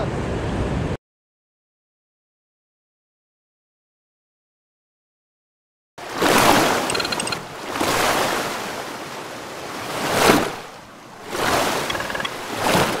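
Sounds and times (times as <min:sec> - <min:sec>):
waves washing in: 0:06.0 - 0:13.0.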